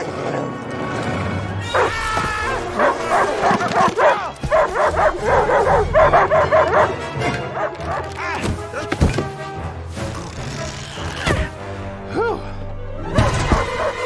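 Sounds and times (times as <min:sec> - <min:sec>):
film score music: 0:00.0 - 0:14.0
cartoon dog barking: 0:01.7 - 0:08.2.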